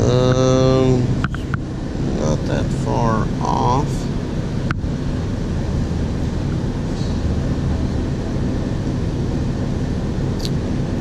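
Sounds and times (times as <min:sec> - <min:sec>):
machinery drone: 0:00.0 - 0:11.0.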